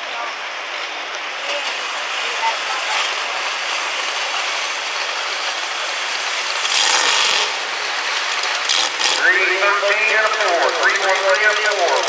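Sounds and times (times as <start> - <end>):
tractor engine running: 0.3 - 12.0.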